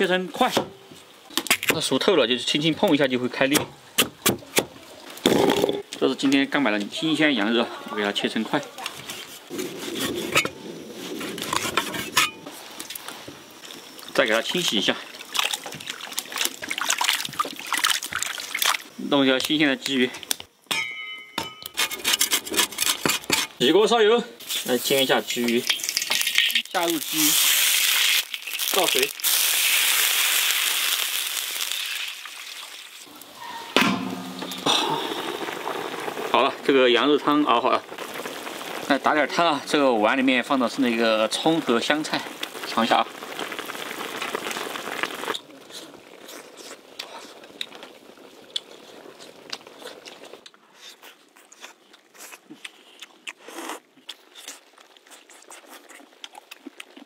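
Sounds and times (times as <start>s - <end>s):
water hissing in hot oil: 8.4s - 19.2s, 24.4s - 33.4s, 34.1s - 49.4s
metal lid clanking on wok: 33.5s - 34.8s
wet chewing and lip smacks: 48.5s - 57.0s.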